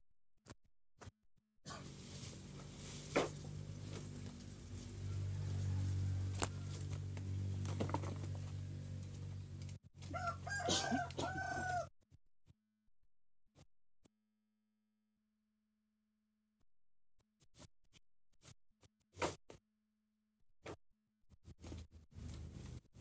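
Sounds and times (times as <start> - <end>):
steady low hum: 1.7 - 9.8
rooster crowing: 4.7 - 7.2, 10.1 - 11.9.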